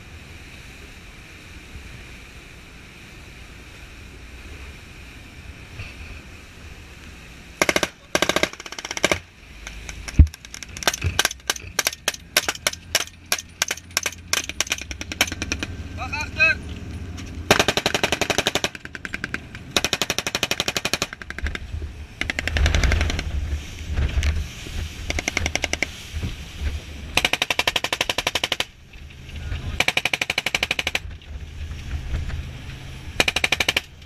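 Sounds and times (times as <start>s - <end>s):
boat engines droning: 0.0s - 34.0s
automatic gunfire bursts: 7.6s - 9.2s, 17.5s - 18.9s.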